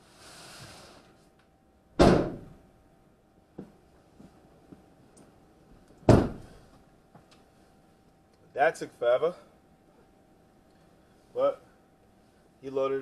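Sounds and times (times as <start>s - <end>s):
van door slamming: 2.0s - 2.5s, 6.1s - 6.6s.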